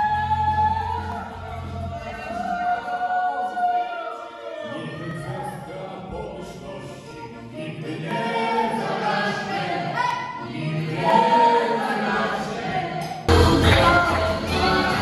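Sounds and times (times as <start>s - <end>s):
people singing unaccompanied: 4.6s - 15.0s
music with heavy bass: 13.3s - 15.0s.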